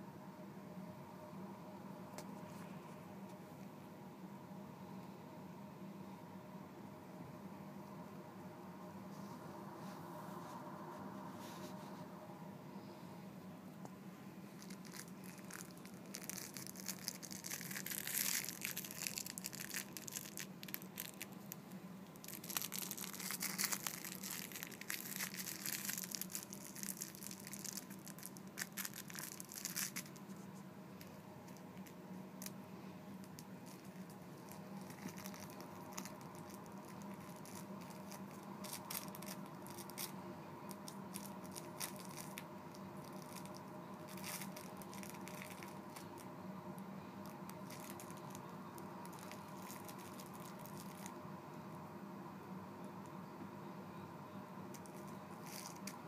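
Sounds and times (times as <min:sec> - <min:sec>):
faint steady hum: 0:00.0 - 0:56.0
kitten scratching and rustling: 0:33.2 - 0:46.2, 0:54.8 - 0:56.0.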